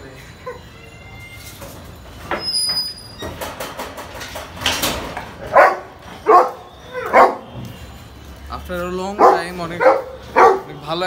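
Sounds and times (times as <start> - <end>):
dog barking: 5.4 - 7.5, 9.2 - 10.8.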